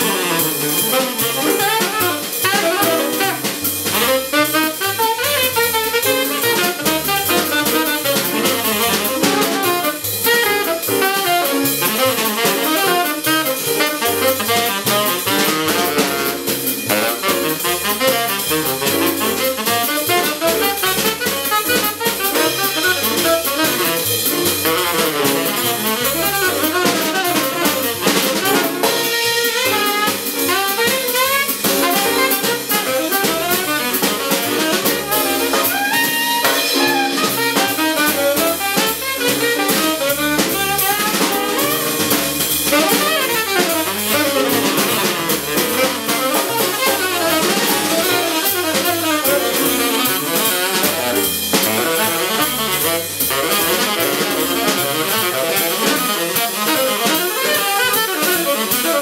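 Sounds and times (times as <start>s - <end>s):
digital piano: 0.0s - 59.0s
drum kit with cymbals: 0.0s - 59.0s
tenor saxophone playing fast lines: 0.0s - 59.0s
upright double bass: 0.0s - 59.0s.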